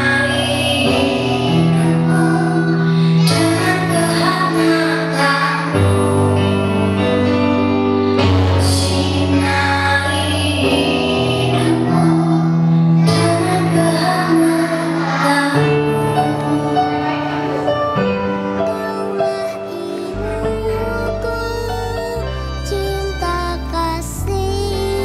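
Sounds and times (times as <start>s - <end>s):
slow music with sustained chords: 0.0s - 25.0s
steady bass line: 20.2s - 25.0s.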